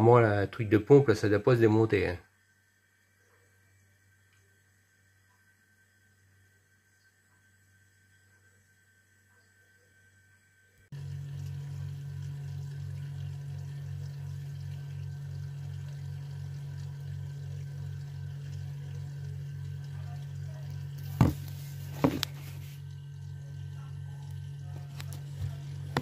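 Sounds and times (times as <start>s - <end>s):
dishwasher humming: 10.9s - 26.0s
water moving in dishwasher: 11.0s - 26.0s.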